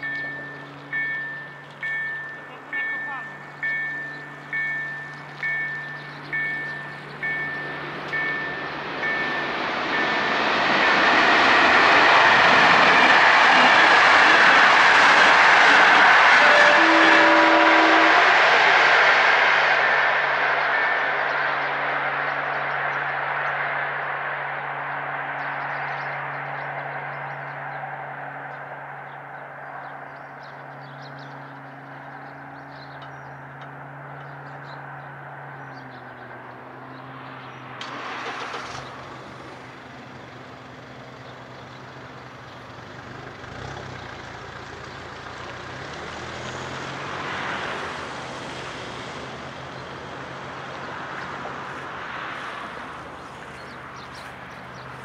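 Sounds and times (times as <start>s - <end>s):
passenger train: 0.0s - 55.0s
car driving off: 3.4s - 55.0s
car engine idling: 21.2s - 55.0s.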